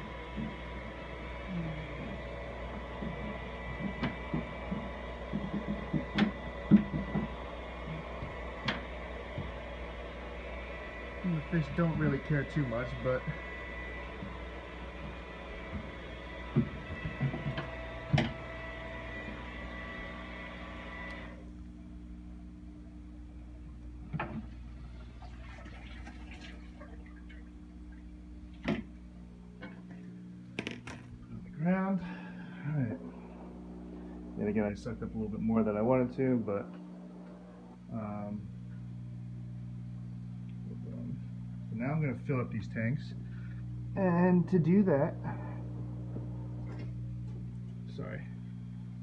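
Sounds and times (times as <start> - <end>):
aquarium pump humming: 0.0 - 49.0
water trickling and dripping: 25.1 - 28.2.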